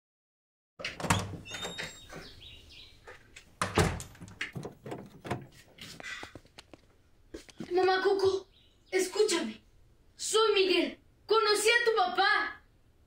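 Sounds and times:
door handle and latch rattling: 0:00.8 - 0:02.3, 0:03.6 - 0:05.6
heavy door thumps: 0:00.9 - 0:02.3, 0:03.6 - 0:05.5.

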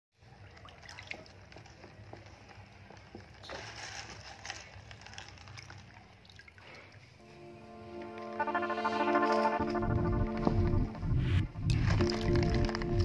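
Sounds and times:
water splashing: 0:00.2 - 0:02.1
water sloshing in a tub: 0:00.2 - 0:03.7, 0:04.5 - 0:07.2.

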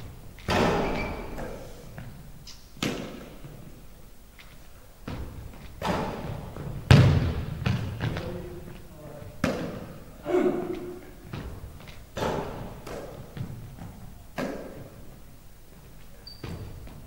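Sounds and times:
basketball thudding on hardwood floor: 0:05.1 - 0:08.2.

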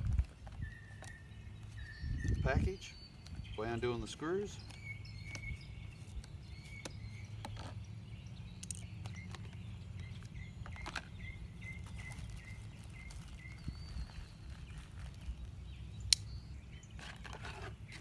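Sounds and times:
plastic packaging handled: 0:11.7 - 0:15.5.

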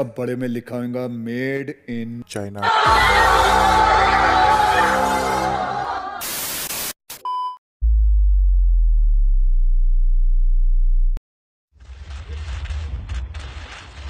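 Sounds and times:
music: 0:02.7 - 0:06.2
burst of static: 0:06.2 - 0:07.0.

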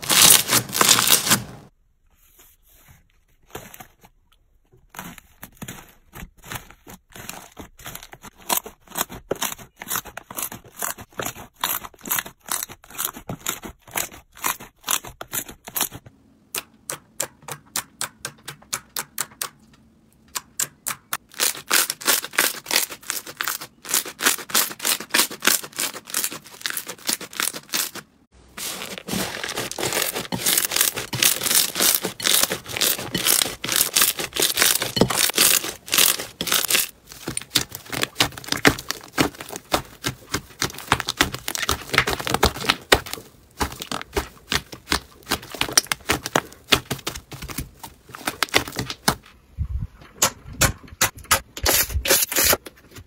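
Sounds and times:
slime crackling and popping: 0:00.0 - 0:01.6, 0:28.6 - 0:47.6.

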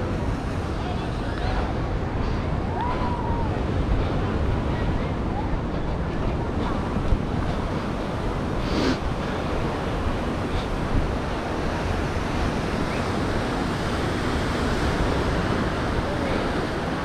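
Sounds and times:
ocean surf rushing: 0:00.0 - 0:17.0
wind buffeting microphone: 0:00.0 - 0:17.0.

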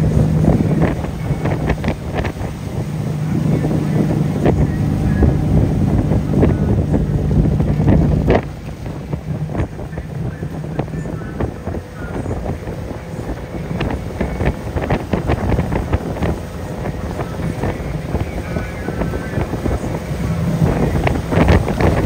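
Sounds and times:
motorboat engine running: 0:00.0 - 0:22.0
wake and spray splashing: 0:00.0 - 0:22.0
wind buffeting microphone: 0:00.0 - 0:22.0.

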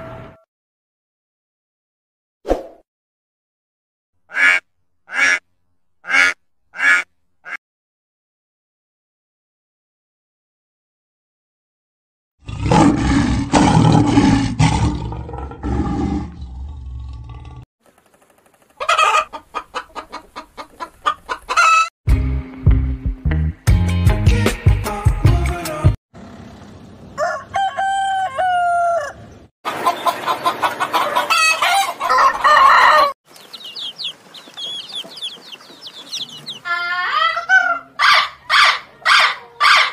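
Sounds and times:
lion grunting: 0:12.4 - 0:17.6
lion roaring: 0:12.4 - 0:17.6
chickens clucking: 0:18.5 - 0:21.9, 0:29.0 - 0:39.9
roosters crowing: 0:18.8 - 0:20.2, 0:21.0 - 0:21.9, 0:27.1 - 0:39.9
faint high chirping: 0:33.3 - 0:36.7.

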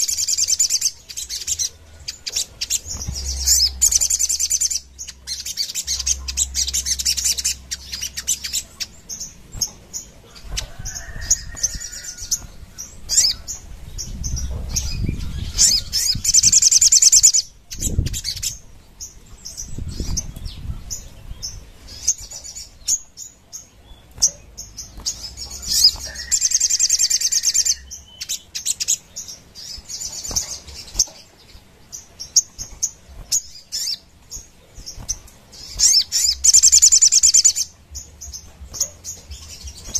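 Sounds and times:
sunbird chattering song: 0:00.0 - 0:39.9.

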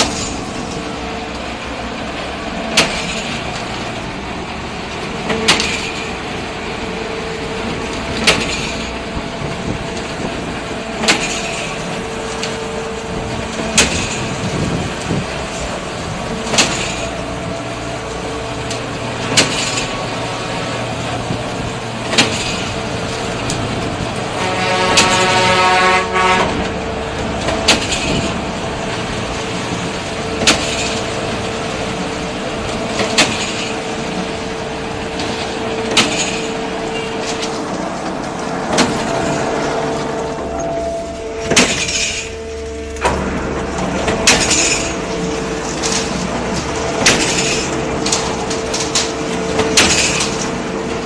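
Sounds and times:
concrete pump hum: 0:00.0 - 0:51.0
horn-like tone: 0:24.3 - 0:26.6, 0:39.9 - 0:43.6.

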